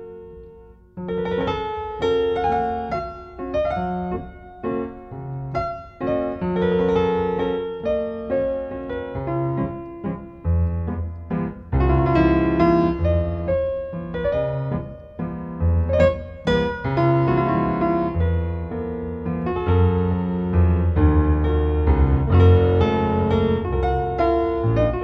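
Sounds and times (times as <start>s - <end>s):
piano music: 0.0s - 25.0s.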